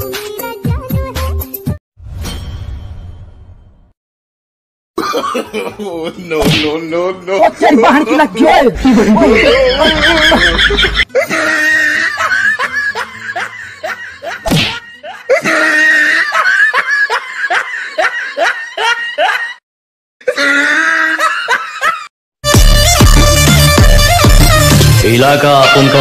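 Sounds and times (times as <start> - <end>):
hearty laughter: 8.8 - 19.6, 20.3 - 22.1.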